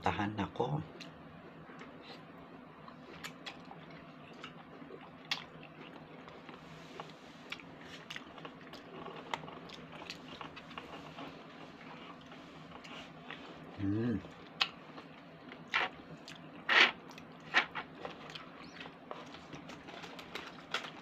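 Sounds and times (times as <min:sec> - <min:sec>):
faint steady hum: 0:00.0 - 0:21.0
wet chewing and mouth clicks: 0:02.8 - 0:13.4.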